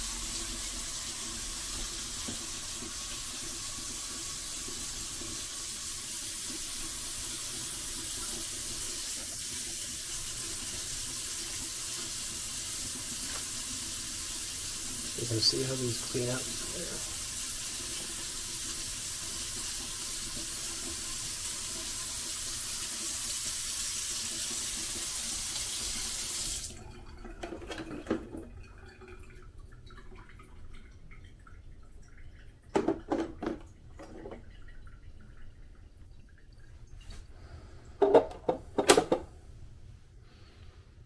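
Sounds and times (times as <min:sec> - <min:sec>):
tap running into sink: 0:01.6 - 0:02.9, 0:32.7 - 0:34.5, 0:38.0 - 0:39.3.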